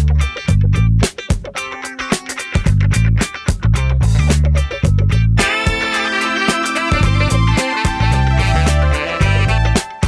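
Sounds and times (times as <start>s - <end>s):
guitar-led music with steady beat: 0.0s - 10.0s.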